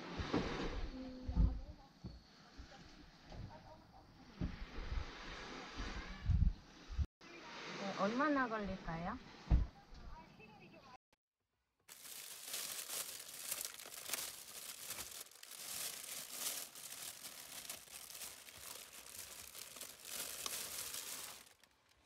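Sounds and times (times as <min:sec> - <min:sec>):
plastic bag crinkling: 0:11.9 - 0:22.0.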